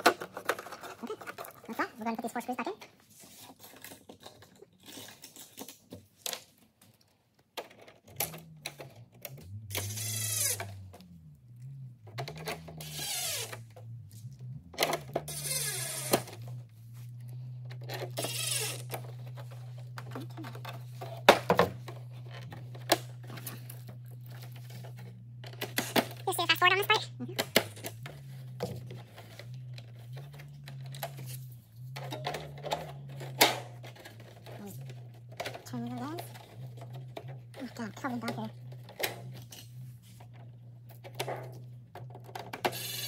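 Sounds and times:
steady low hum: 8.2s - 43.0s
drill driving screws into plastic: 9.7s - 10.8s, 12.8s - 13.6s, 18.2s - 19.0s, 42.7s - 43.0s.

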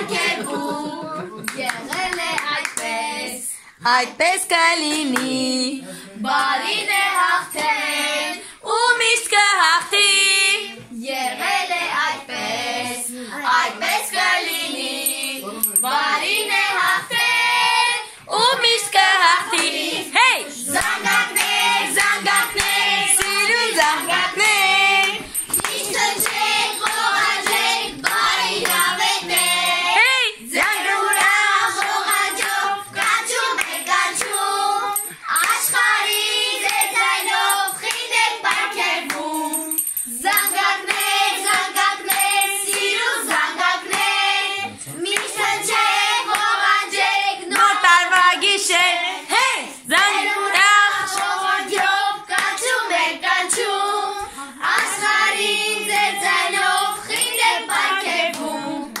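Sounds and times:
hands clapping: 0.0s - 3.0s, 4.8s - 5.4s, 19.4s - 46.7s, 47.5s - 48.4s, 49.4s - 52.8s, 53.5s - 59.0s
girls and children singing: 0.0s - 59.0s.

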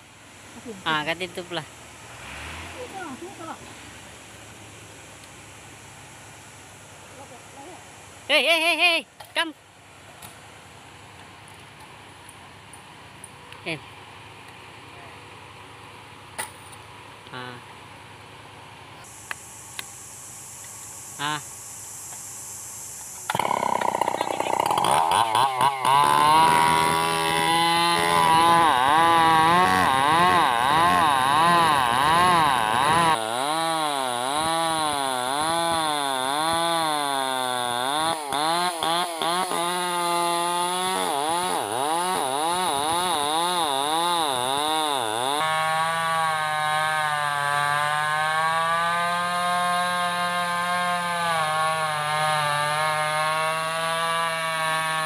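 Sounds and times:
chainsaw cutting a log: 23.1s - 55.0s.

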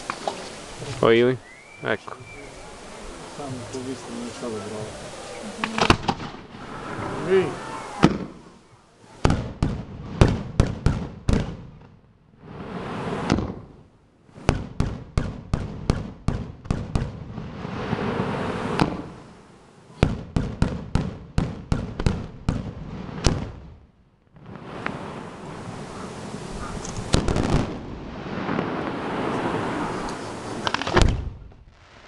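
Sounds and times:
fireworks hissing: 0.0s - 10.4s, 12.4s - 14.8s, 16.9s - 20.6s, 24.4s - 32.0s
fireworks bangs: 0.0s - 32.0s.

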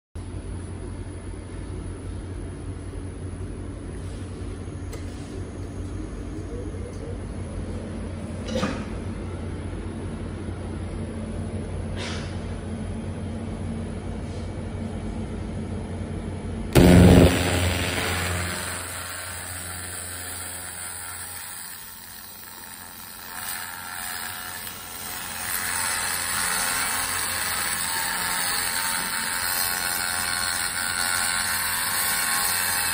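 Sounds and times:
low machine hum: 0.2s - 32.8s
laser cleaner high hiss: 16.8s - 25.0s
very loud burst: 16.8s - 25.5s.

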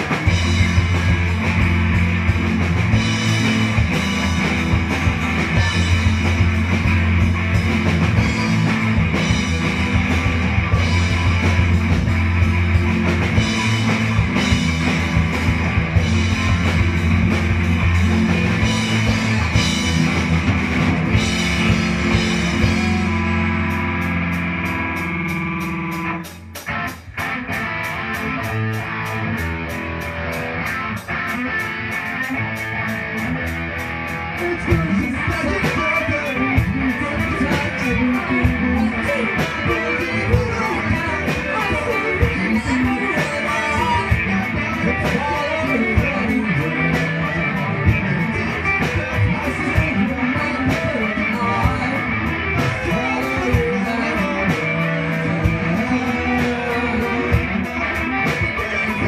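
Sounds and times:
live rock band playing: 0.0s - 59.0s
person singing: 21.0s - 23.9s, 34.4s - 59.0s.

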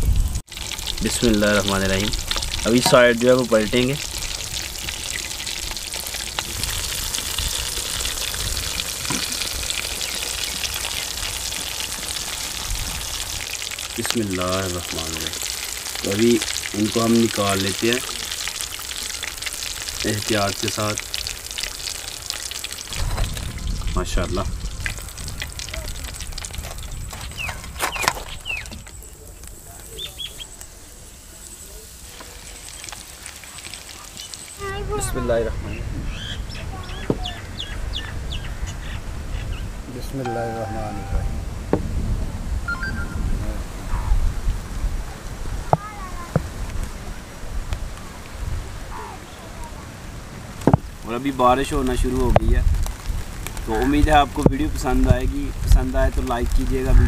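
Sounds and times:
chicken deep-frying in oil: 0.0s - 41.3s, 45.0s - 47.4s, 48.0s - 57.0s
birds chirping: 26.9s - 30.6s, 35.6s - 41.4s, 42.7s - 44.2s.

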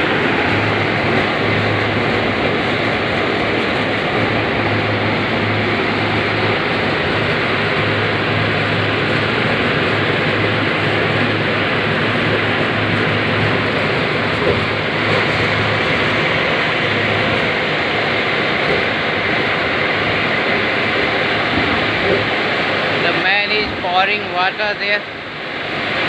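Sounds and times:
factory machinery din: 0.0s - 26.0s
low hum: 0.0s - 26.0s.

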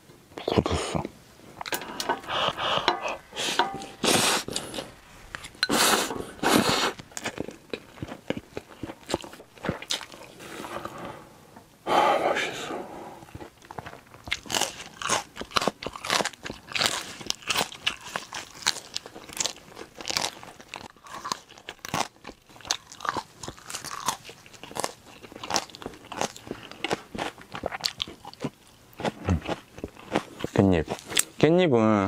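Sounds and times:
chewing crunchy food: 4.1s - 11.0s, 13.2s - 31.4s.

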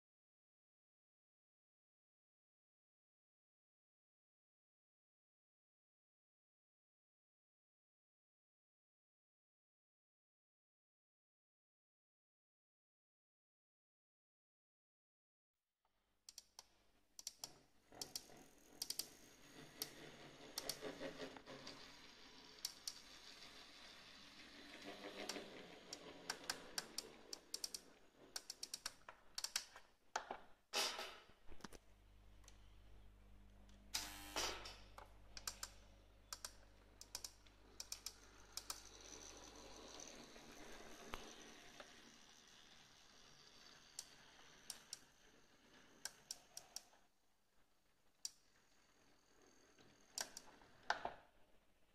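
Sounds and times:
model train wheels clicking: 17.2s - 29.7s, 35.0s - 47.1s, 48.2s - 51.1s.

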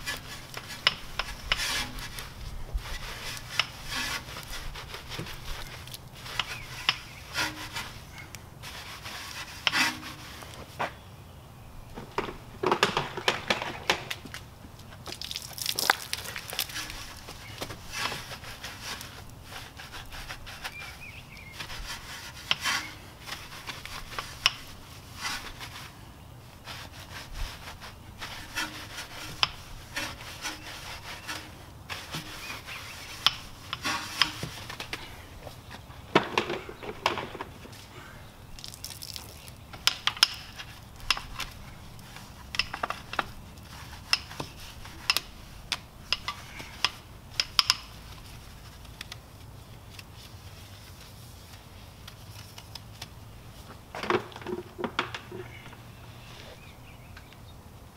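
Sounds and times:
brush scrubbing car wheel: 26.6s - 34.6s.

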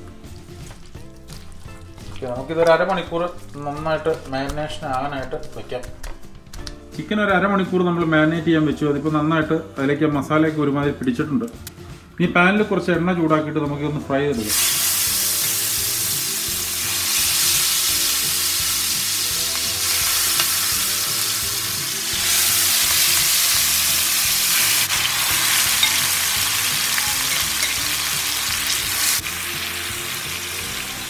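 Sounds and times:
chicken sizzling in hot oil: 14.4s - 31.0s.

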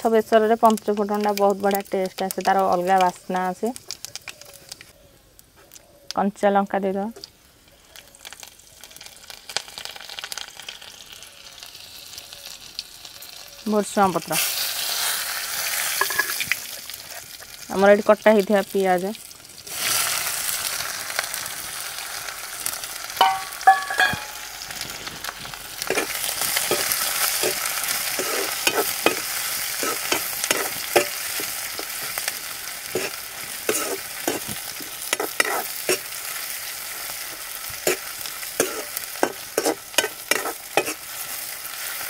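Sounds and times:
onions sizzling in oil: 0.0s - 5.0s, 7.1s - 42.0s
ladle scraping and knocking pan: 23.2s - 24.5s, 25.9s - 32.1s, 32.9s - 36.0s, 38.6s - 41.0s
ringing metal clinks: 23.2s - 24.5s.

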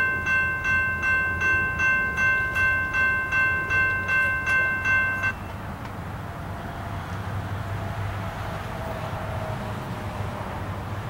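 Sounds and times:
railroad crossing bell ringing: 0.0s - 5.8s.

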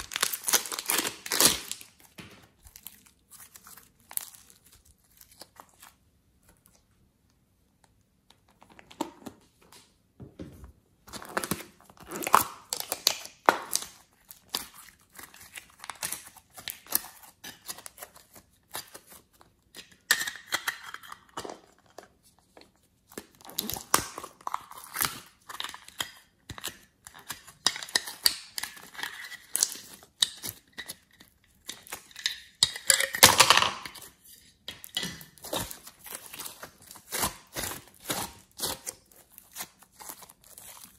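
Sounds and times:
plastic containers crinkling: 0.0s - 6.0s, 31.7s - 40.9s
hands squishing clay and slime: 0.0s - 7.0s, 11.0s - 33.2s, 33.8s - 40.9s.

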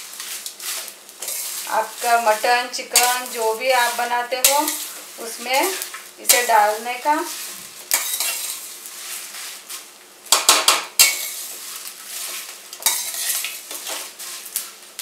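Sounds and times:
spices sizzling in oil: 0.0s - 15.0s
metal spatula scraping pan: 0.2s - 9.8s, 11.0s - 14.6s.

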